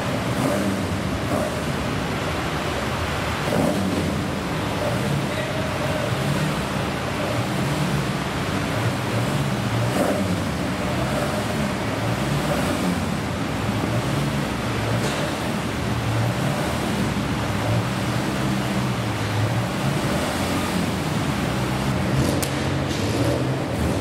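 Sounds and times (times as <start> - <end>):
car engine running: 0.0 - 24.0.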